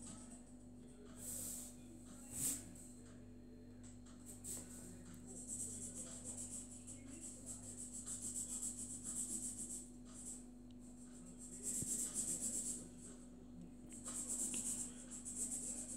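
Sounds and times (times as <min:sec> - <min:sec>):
marker scratching on paper: 0:04.4 - 0:10.4, 0:11.4 - 0:12.9, 0:14.0 - 0:15.9.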